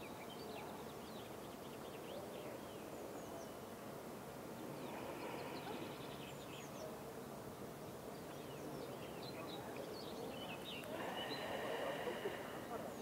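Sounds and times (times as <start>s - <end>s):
small birds chirping: 0.0s - 7.2s, 7.8s - 13.0s.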